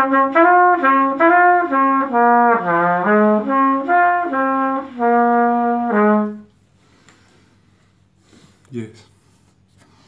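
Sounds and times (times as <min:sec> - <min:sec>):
solo trumpet playing: 0:00.0 - 0:06.6.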